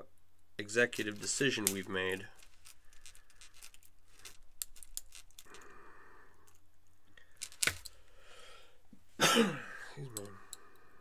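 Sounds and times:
soft rustle: 0:00.9 - 0:05.7.

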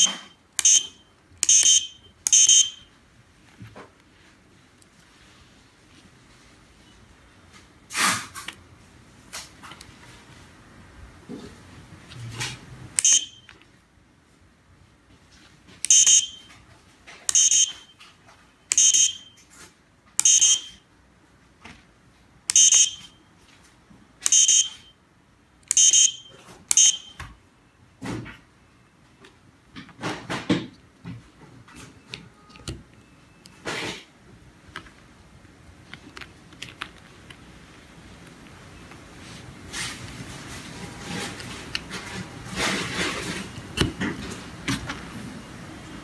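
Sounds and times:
buzzer beeping: 0:00.0 - 0:02.9, 0:13.0 - 0:13.5, 0:15.8 - 0:16.5, 0:17.3 - 0:18.0, 0:18.7 - 0:19.4, 0:20.2 - 0:20.8, 0:22.5 - 0:23.2, 0:24.3 - 0:24.9, 0:25.7 - 0:27.2.

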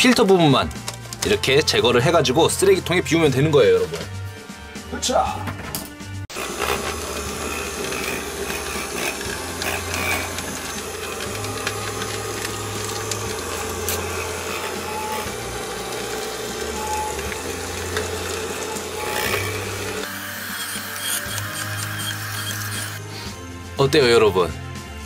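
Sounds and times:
small motor fan whirring: 0:06.3 - 0:23.1
debris rattling up hose: 0:06.4 - 0:20.1.

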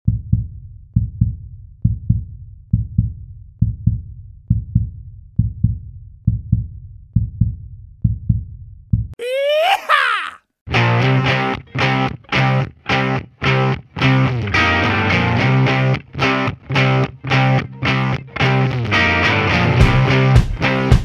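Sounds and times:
heartbeat thumps: 0:00.1 - 0:09.1.

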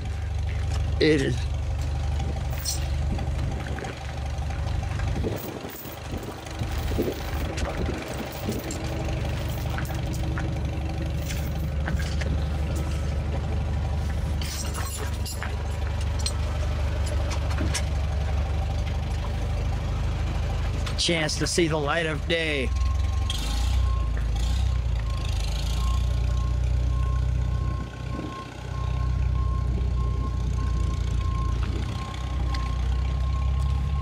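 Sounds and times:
footsteps on gravel: 0:00.0 - 0:17.8
engine idling: 0:00.0 - 0:34.0.

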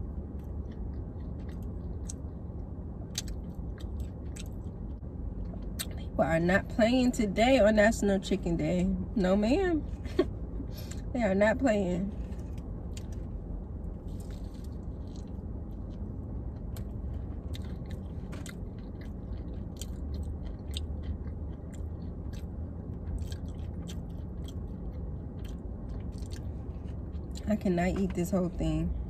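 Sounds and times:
low steady hum: 0:00.0 - 0:29.0
chewing crispy fried chicken: 0:00.2 - 0:06.0, 0:14.1 - 0:27.5.

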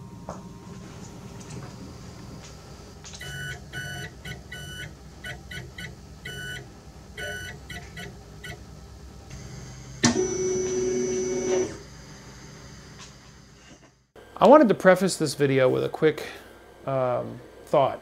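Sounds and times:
steady pitched hum: 0:00.0 - 0:18.0
stepper motors whining: 0:01.1 - 0:14.1.

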